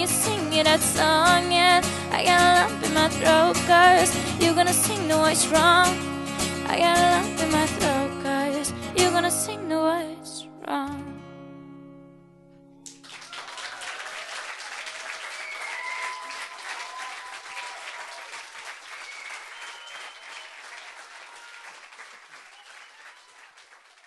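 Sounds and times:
acoustic guitar chord: 0.0 - 12.8
audience applauding: 12.9 - 24.0
voices cheering: 13.2 - 23.7.

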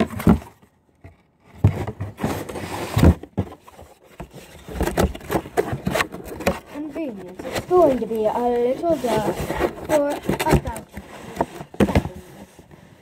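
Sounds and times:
handling rubbing and scraping: 0.0 - 13.0.

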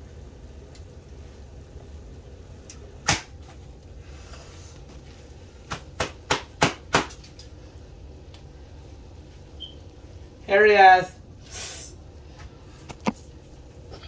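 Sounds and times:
low steady hum: 0.0 - 14.0
sharp kitchen knocks: 5.7 - 7.2.

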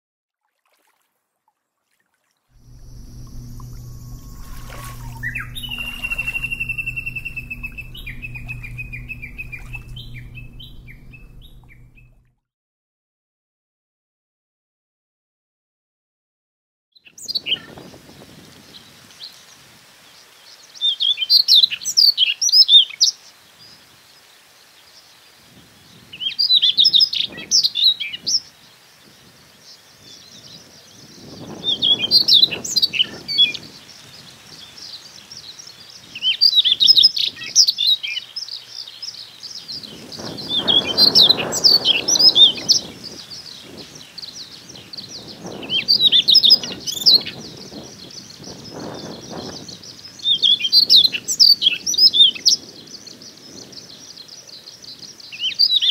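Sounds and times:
bird warbling song: 2.6 - 12.2, 34.7 - 52.3.

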